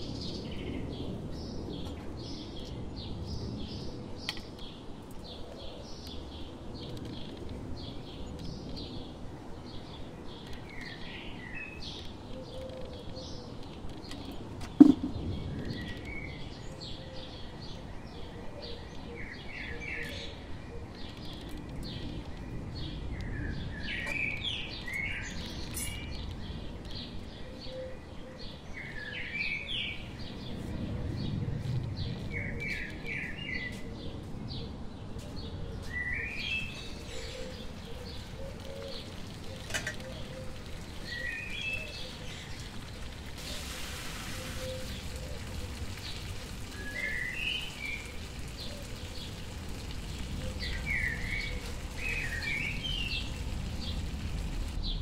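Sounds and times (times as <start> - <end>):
small birds chirping: 0.0 - 55.0
low outdoor rumble: 44.8 - 55.0.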